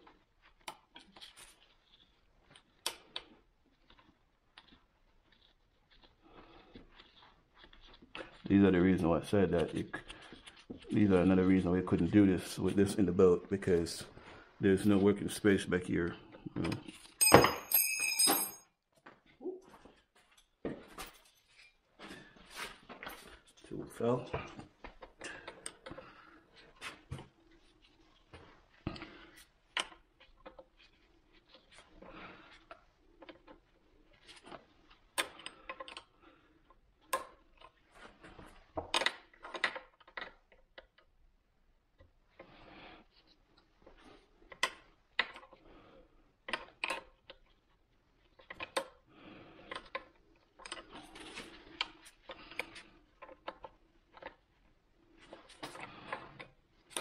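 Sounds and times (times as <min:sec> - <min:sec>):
metallic clicks and clinks: 0:17.2 - 0:18.6.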